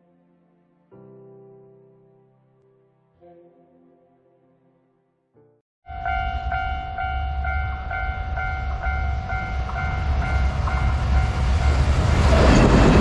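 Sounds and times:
level crossing warning bell: 0:05.9 - 0:12.0
freight train rumbling past: 0:05.9 - 0:13.0.

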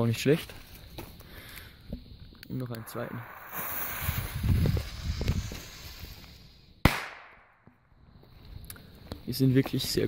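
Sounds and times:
fuse hissing: 0:00.9 - 0:06.8
jet-flame lighter: 0:02.4 - 0:07.3
firecracker bang: 0:02.8 - 0:06.2, 0:06.8 - 0:07.7.

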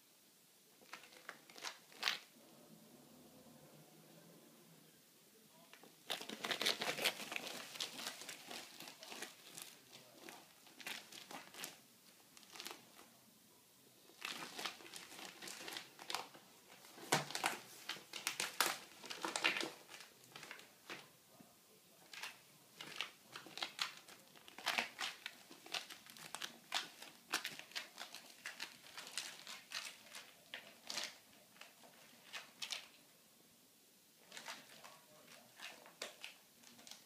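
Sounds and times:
claws scratching on plastic hose: 0:06.0 - 0:11.8.

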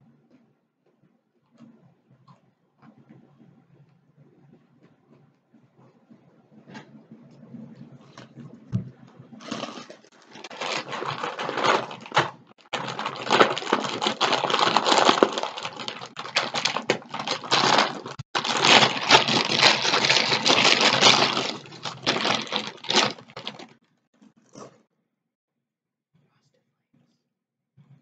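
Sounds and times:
plastic bag crinkling: 0:09.4 - 0:23.8.

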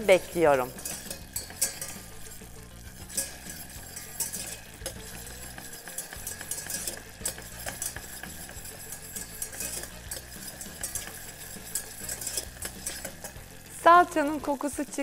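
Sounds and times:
oil sizzling: 0:00.0 - 0:15.0
whisk clicking and scraping pan: 0:00.0 - 0:15.0.

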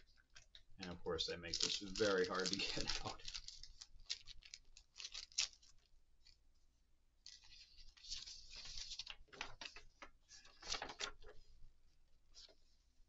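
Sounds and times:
paper rustling and crackling: 0:01.4 - 0:06.4, 0:07.3 - 0:11.5.

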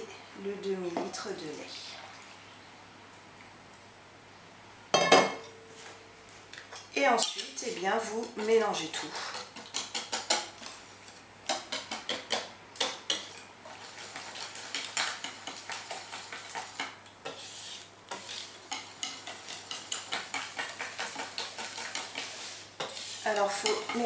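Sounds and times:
whisk rattling against bowl: 0:18.2 - 0:22.3, 0:23.2 - 0:24.0.

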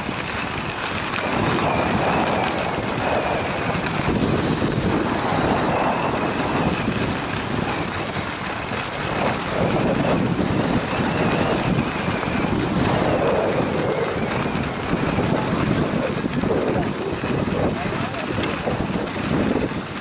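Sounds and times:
skis sliding over snow: 0:00.0 - 0:20.0
wind buffeting microphone: 0:00.0 - 0:20.0.

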